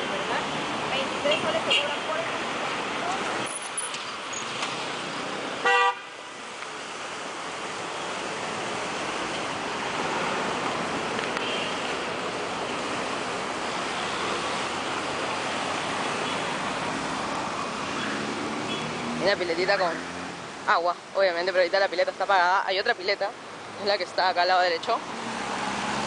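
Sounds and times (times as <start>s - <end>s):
cars passing: 0.0s - 26.0s
car horn toot: 5.6s - 6.2s.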